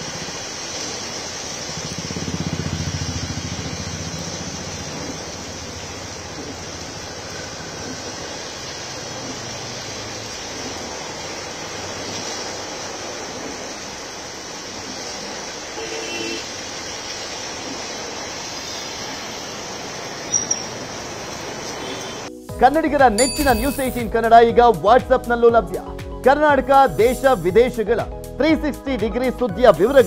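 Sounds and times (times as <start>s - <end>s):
heavy rain: 0.0s - 22.4s
horn toot: 15.8s - 16.5s.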